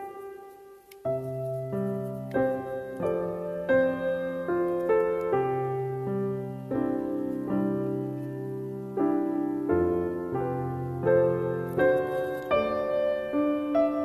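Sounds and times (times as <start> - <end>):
soft piano music: 0.0 - 14.0.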